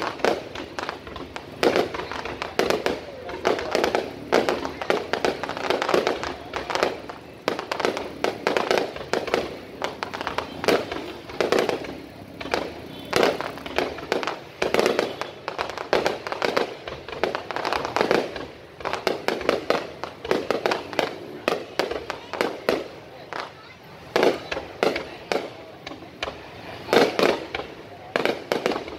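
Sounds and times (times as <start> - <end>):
fireworks bangs and crackles: 0.0 - 28.9.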